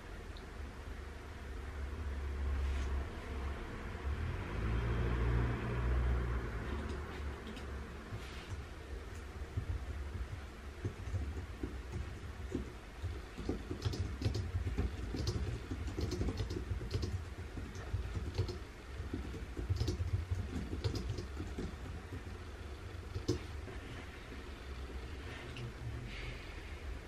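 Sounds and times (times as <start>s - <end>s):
low room hum: 0.0s - 27.0s
typing on computer keyboard: 10.8s - 22.4s, 23.1s - 23.5s.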